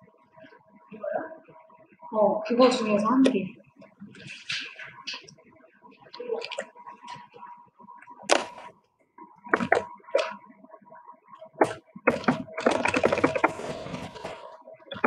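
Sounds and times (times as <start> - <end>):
faint steady tone: 0.0 - 15.0
computer keyboard typing: 9.5 - 10.3, 11.6 - 15.0.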